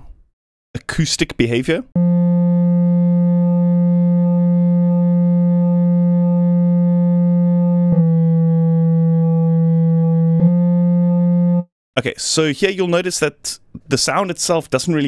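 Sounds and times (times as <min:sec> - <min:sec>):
synthesizer clarinet-like note: 0:02.0 - 0:11.7.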